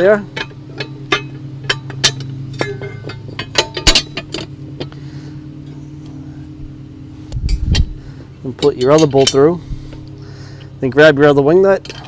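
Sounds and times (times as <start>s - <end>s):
metal plates clinking: 0.0s - 5.0s, 7.4s - 9.6s, 11.7s - 12.0s
low hum: 0.0s - 12.0s.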